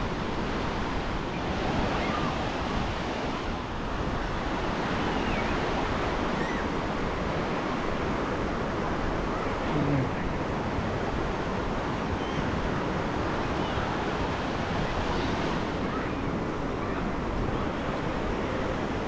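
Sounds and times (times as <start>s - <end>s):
waves breaking on a beach: 0.0s - 19.0s.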